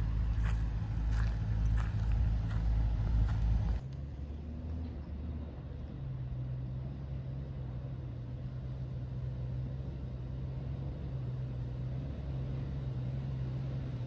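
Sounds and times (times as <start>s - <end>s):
engine idling: 0.0s - 6.7s.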